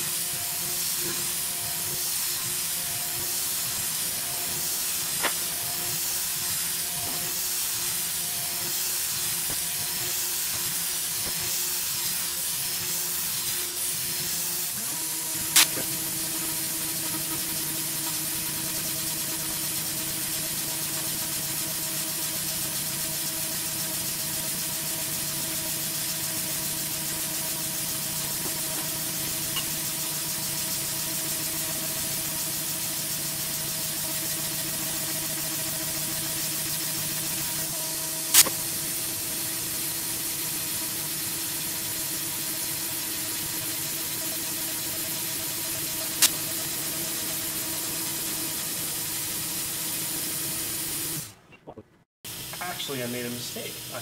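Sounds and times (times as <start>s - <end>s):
milling machine spindle hum: 0.0s - 51.3s
coolant nozzle hissing: 0.2s - 51.3s
sharp machine click: 15.5s - 15.9s, 38.3s - 38.6s, 46.2s - 46.5s.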